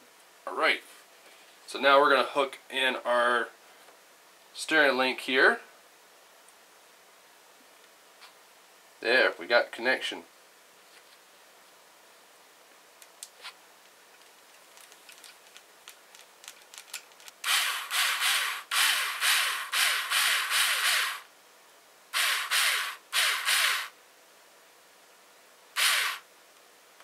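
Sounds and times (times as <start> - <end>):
electric screwdriver running: 17.4 - 21.3, 22.2 - 23.9, 25.8 - 26.3.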